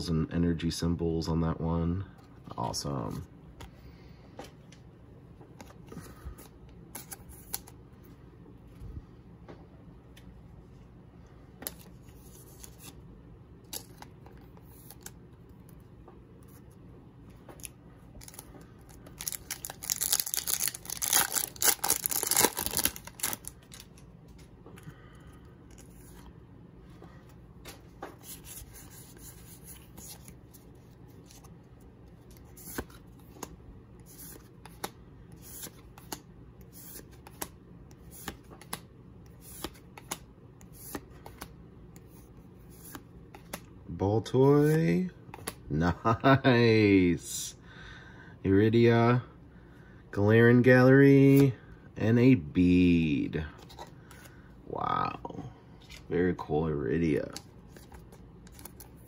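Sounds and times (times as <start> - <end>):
foil wrapper ripping: 19.1 - 23.8.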